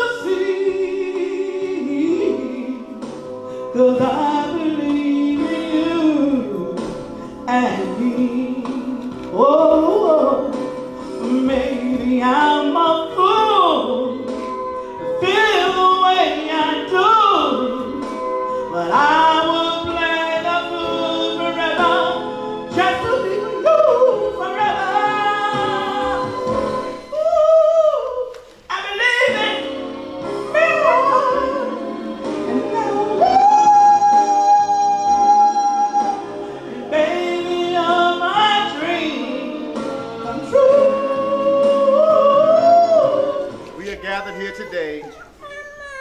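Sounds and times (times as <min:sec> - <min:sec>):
person singing: 0:40.2 - 0:46.0.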